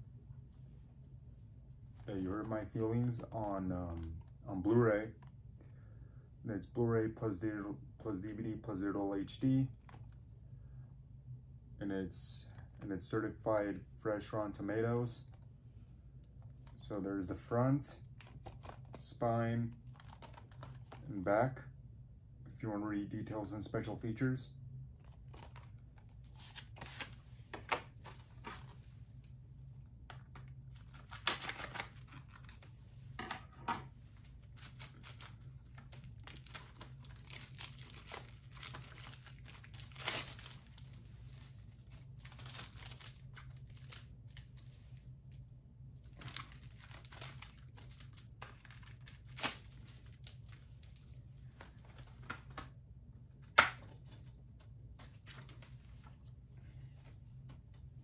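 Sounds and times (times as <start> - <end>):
plastic shrink-wrap tearing: 30.7 - 32.6, 34.3 - 44.7, 46.0 - 50.6.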